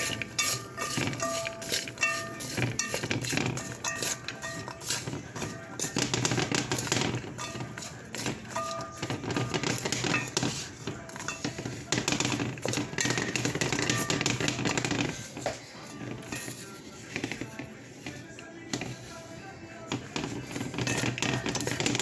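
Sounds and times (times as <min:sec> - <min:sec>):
wooden spoon scraping metal pan: 0:00.0 - 0:22.0.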